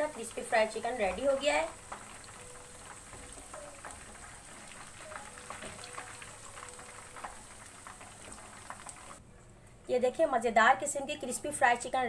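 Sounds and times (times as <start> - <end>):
frying oil sizzling: 0.0 - 9.2
small crackles and pops: 0.0 - 9.2.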